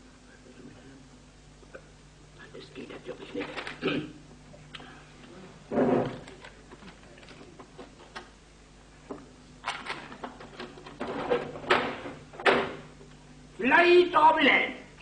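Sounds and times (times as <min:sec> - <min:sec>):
desk work knocks and clicks: 0:09.9 - 0:12.8.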